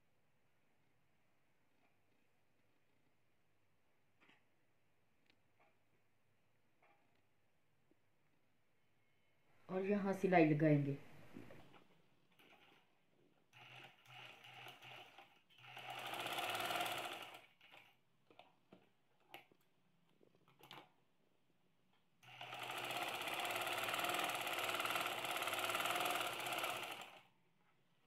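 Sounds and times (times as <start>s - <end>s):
sewing machine running: 13.5s - 17.9s, 22.2s - 27.3s.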